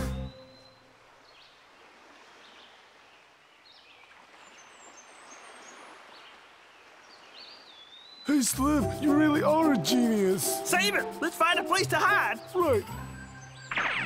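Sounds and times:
soft surf wash: 0:00.8 - 0:12.3
small birds chirping: 0:02.5 - 0:08.6, 0:12.4 - 0:14.0.

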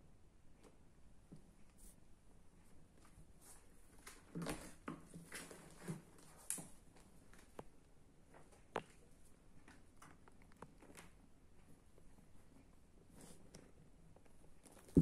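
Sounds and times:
cats rustling in cardboard box: 0:03.0 - 0:07.6.

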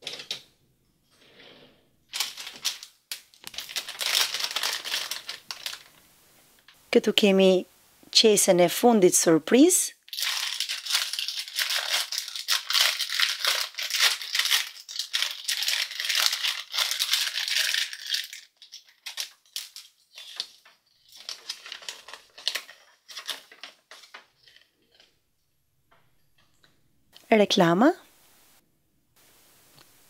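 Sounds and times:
plastic bag crinkling: 0:02.1 - 0:06.7, 0:10.1 - 0:25.1
plastic toy clicks and rustles: 0:10.1 - 0:25.1.

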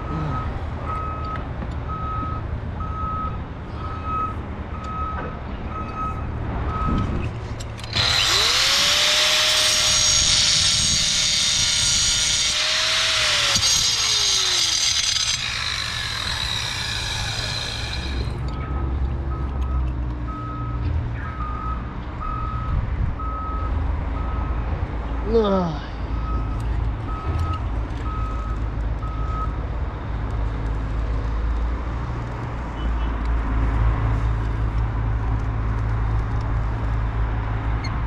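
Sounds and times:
truck reversing beeper: 0:00.0 - 0:07.3, 0:14.2 - 0:24.6, 0:26.2 - 0:29.6
power tool motor whine: 0:07.8 - 0:18.4.

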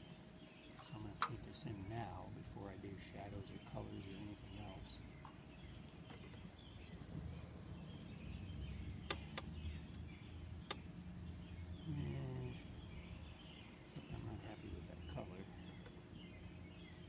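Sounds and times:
bird chirps: 0:00.0 - 0:17.0
steady low rumble: 0:01.0 - 0:16.9
sharp clicks: 0:01.2 - 0:01.4, 0:09.0 - 0:09.6, 0:10.6 - 0:10.9.

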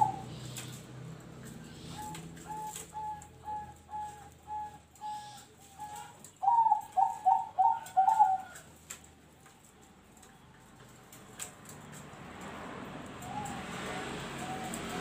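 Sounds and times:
dove cooing: 0:00.0 - 0:00.9, 0:01.5 - 0:08.7, 0:13.2 - 0:15.0.

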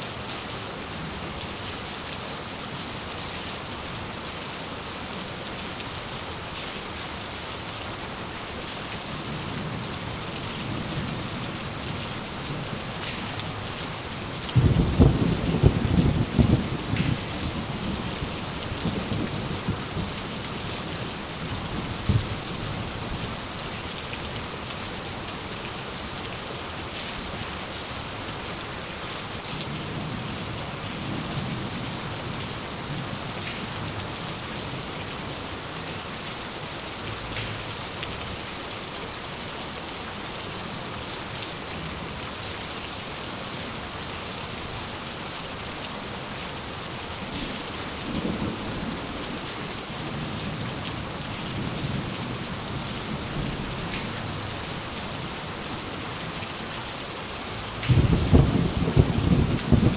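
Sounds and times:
steady rain falling: 0:00.0 - 0:59.9
low rolls of thunder: 0:14.6 - 0:18.1, 0:57.8 - 0:59.9.

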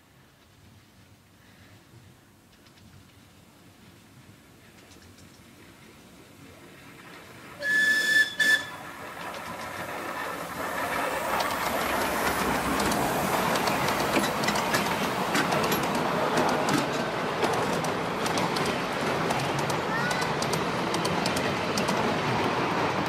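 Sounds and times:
train cars rolling past: 0:00.1 - 0:23.0
wheels clicking over rail joints: 0:04.6 - 0:23.0
steam locomotive whistle: 0:07.6 - 0:08.8.

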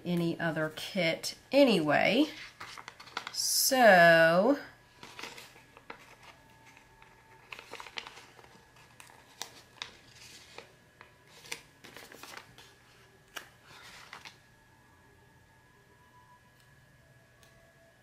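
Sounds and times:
sticker paper rustling and crinkling: 0:02.3 - 0:03.4, 0:04.9 - 0:14.4.

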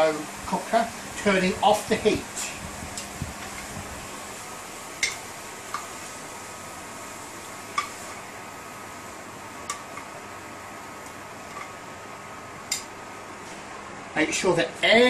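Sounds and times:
steady background hiss: 0:00.0 - 0:15.0
metal tongs clicking against pan: 0:05.0 - 0:05.9, 0:12.7 - 0:12.9.

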